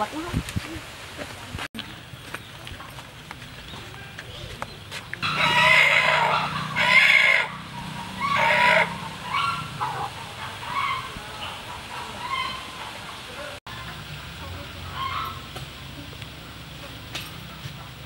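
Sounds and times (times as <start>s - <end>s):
rooster crowing: 5.2s - 10.0s.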